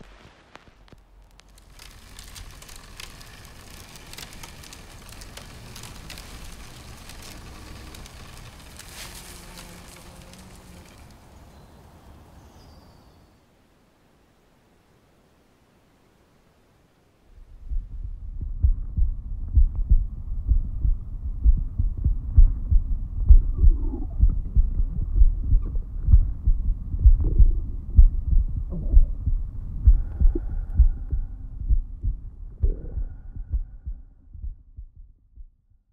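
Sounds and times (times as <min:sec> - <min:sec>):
low muffled thumping pulses: 0:17.4 - 0:35.9.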